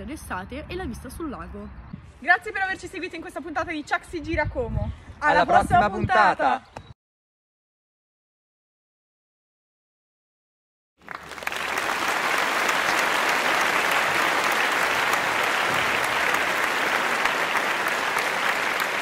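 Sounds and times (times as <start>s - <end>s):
audience applause: 11.0s - 19.0s.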